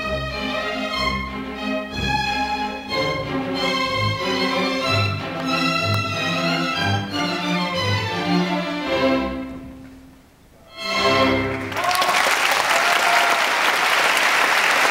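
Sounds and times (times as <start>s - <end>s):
orchestra with strings: 0.0s - 12.0s
audience applause: 11.5s - 14.9s.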